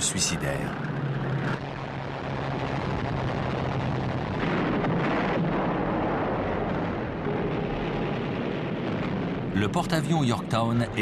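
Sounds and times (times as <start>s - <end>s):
low aircraft engine drone: 0.0s - 11.0s
bombs exploding: 1.6s - 11.0s.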